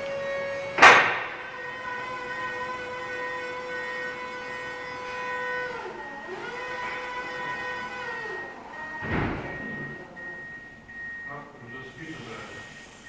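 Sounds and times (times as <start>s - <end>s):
hydraulic pump motor whining: 0.0s - 11.3s
loud thud: 0.8s - 1.5s, 9.0s - 10.0s.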